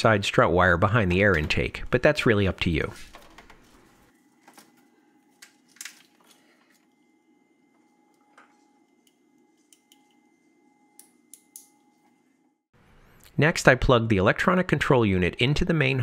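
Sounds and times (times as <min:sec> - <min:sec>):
low steady hum: 0:00.0 - 0:13.9.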